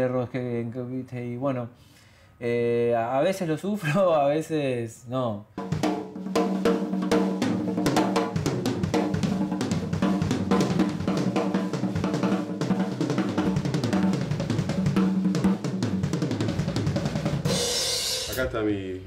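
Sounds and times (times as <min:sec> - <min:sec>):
drum kit groove: 0:05.6 - 0:18.8.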